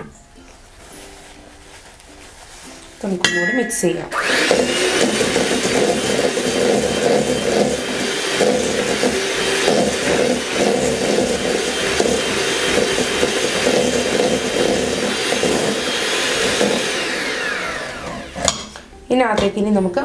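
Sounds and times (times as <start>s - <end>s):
electric hand mixer running: 4.1s - 18.8s.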